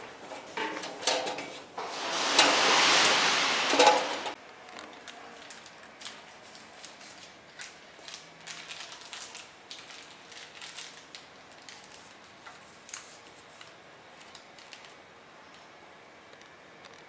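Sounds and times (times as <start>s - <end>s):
plastic bag crinkling: 5.4s - 12.3s.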